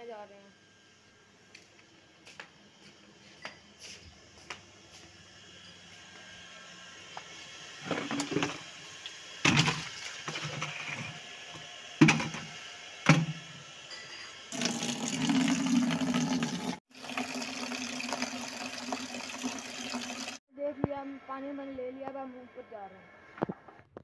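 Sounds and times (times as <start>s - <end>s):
water pouring into plastic bucket: 14.5s - 20.4s.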